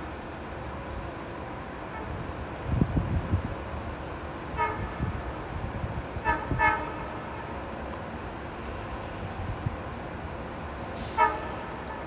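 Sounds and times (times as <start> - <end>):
train horn toots: 1.9 - 2.2, 4.5 - 5.2, 6.2 - 7.6, 11.0 - 12.0.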